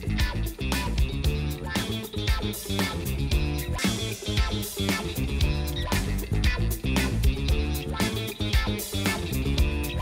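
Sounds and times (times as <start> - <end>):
upbeat music with guitar: 0.0 - 10.0.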